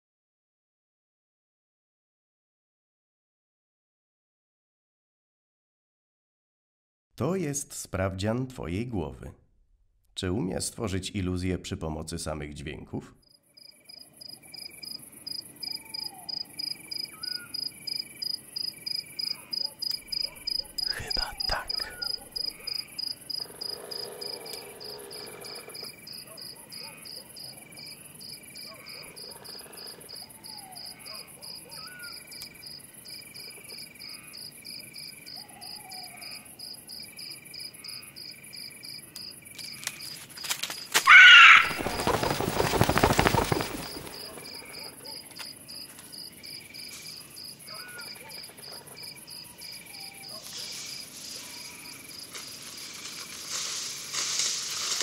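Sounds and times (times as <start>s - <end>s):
crickets chirping: 13.2s - 55.0s.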